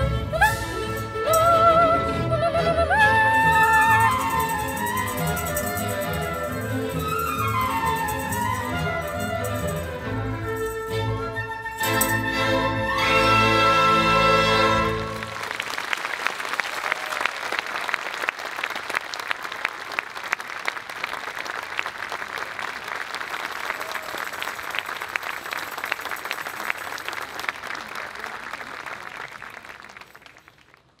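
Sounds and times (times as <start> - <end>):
audience applauding: 3.2 - 10.8, 14.2 - 31.0.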